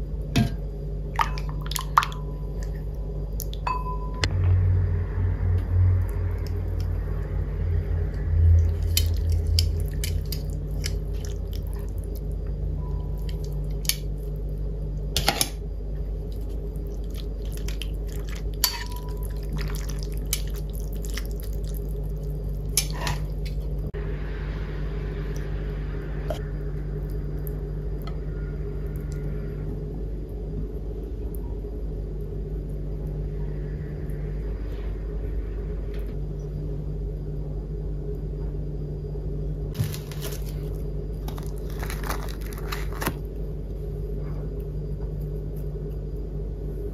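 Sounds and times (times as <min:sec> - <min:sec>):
steady low hum: 0:00.0 - 0:46.9
metal tongs clinking on ceramic bowl: 0:18.6 - 0:19.2.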